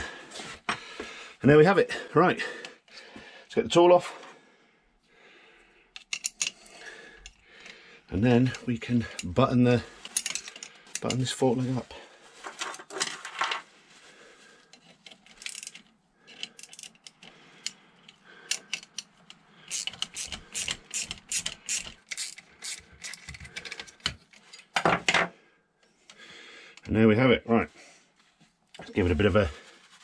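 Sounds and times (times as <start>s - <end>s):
metal tools clinking: 6.0s - 7.7s, 8.4s - 11.4s, 14.7s - 25.0s.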